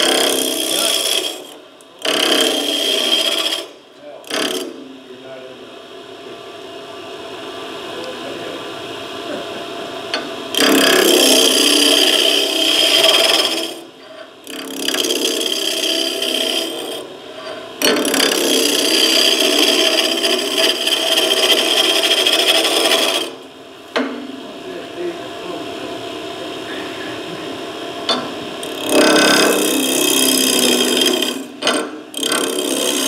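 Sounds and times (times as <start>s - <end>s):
chisel hissing on spinning wood: 0.0s - 4.6s, 10.5s - 13.9s, 14.5s - 17.1s, 17.8s - 23.4s, 28.6s - 33.0s
lathe running: 0.0s - 5.0s, 7.5s - 33.0s.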